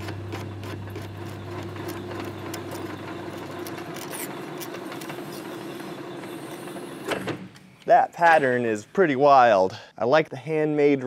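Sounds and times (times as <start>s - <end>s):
metal lathe humming: 0.0s - 7.2s.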